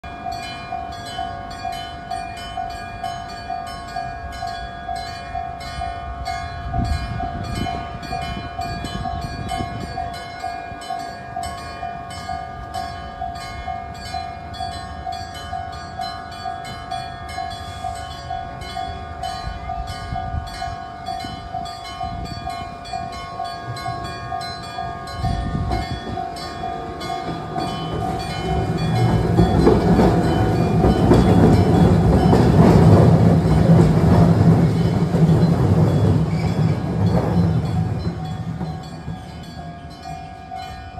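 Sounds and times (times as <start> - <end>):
level crossing bell ringing: 0.0 - 33.7
tram rumbling past: 0.0 - 40.9.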